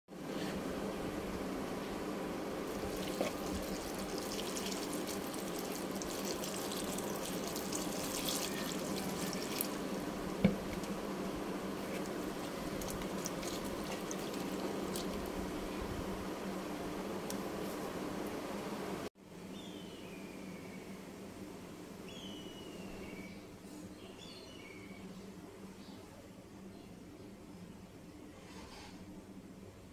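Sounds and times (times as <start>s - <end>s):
steady low hum: 0.1s - 28.4s
hand swishing vegetables in water: 2.7s - 10.0s
water pouring into a plastic bowl: 2.7s - 10.9s, 12.0s - 15.2s.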